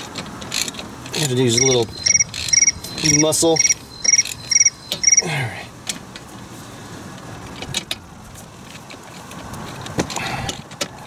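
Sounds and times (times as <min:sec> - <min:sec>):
wrench clicking on bolts: 0:00.2 - 0:05.2.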